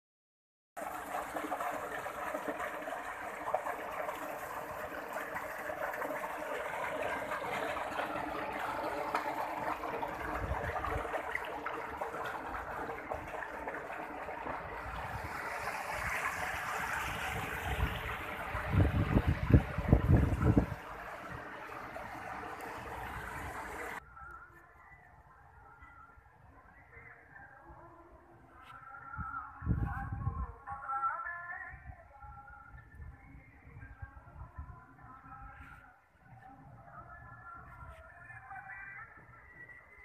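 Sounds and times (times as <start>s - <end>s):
water gushing into tank: 0.8s - 24.0s.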